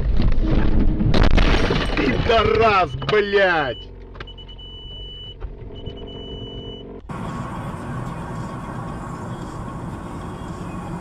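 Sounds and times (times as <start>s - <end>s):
car driving on road: 2.2s - 11.0s
car engine idling: 2.6s - 11.0s
car warning beeps: 3.4s - 7.0s.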